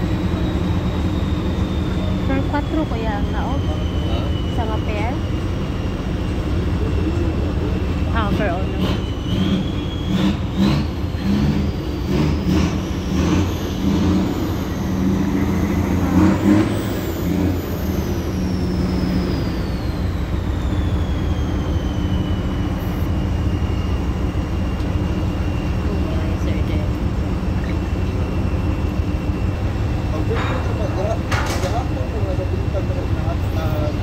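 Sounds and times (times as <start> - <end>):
high whine falling in pitch: 0.0 - 34.0
ship diesel engine drone: 0.0 - 34.0
wind: 0.0 - 34.0
water noise: 22.1 - 30.7.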